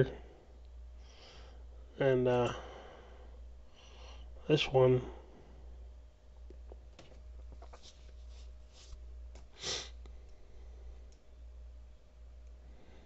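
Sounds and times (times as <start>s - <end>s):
low electrical hum: 0.0s - 13.0s
person breathing: 0.2s - 1.9s, 2.5s - 4.4s, 9.5s - 11.1s, 12.6s - 13.0s.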